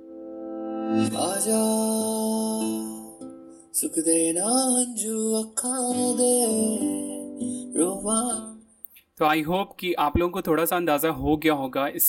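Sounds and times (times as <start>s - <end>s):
song with singing over plucked strings: 0.5s - 8.8s.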